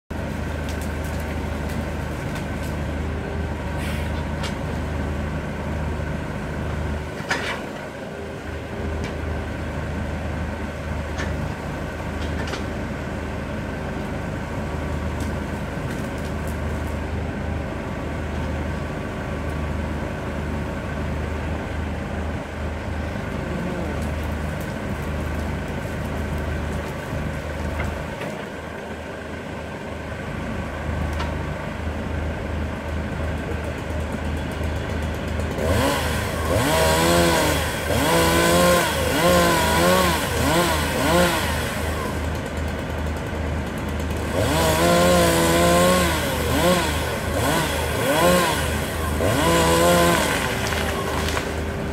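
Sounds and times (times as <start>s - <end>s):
diesel machinery droning: 0.1s - 51.9s.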